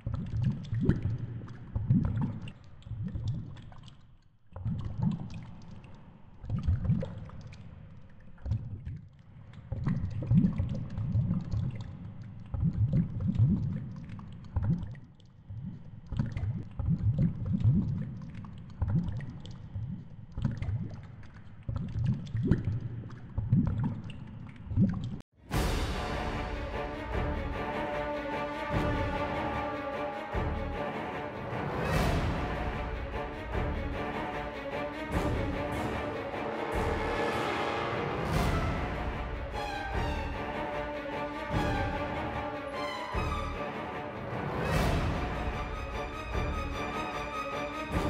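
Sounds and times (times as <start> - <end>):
music: 25.4 - 48.0.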